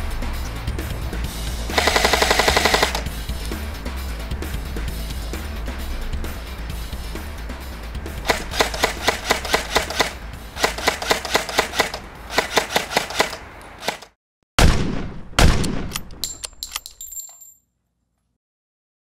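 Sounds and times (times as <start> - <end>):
airsoft gun rapid firing: 1.7 - 3.1, 8.2 - 15.9.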